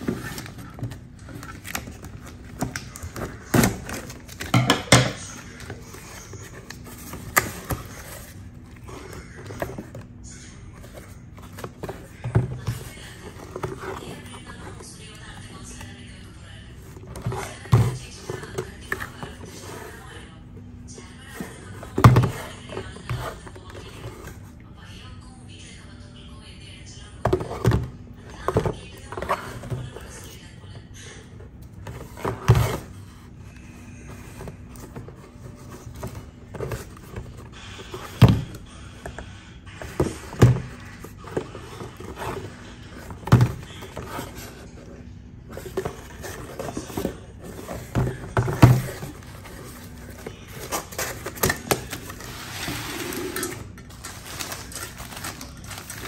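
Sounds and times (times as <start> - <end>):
plastic bottles clacking: 45.5 - 52.3, 53.3 - 56.0
plastic bag crinkling: 49.2 - 56.0.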